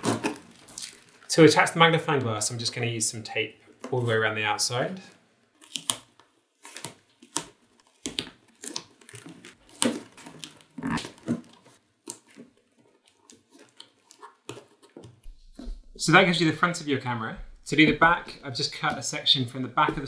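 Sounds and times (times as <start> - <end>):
tape ripping: 0.0 - 1.3, 5.6 - 15.8.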